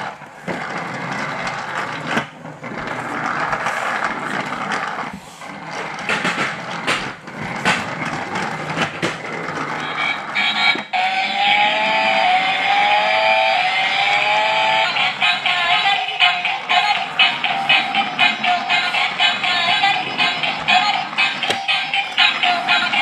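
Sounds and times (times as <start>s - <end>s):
toy car engine sound effect: 9.6s - 23.0s.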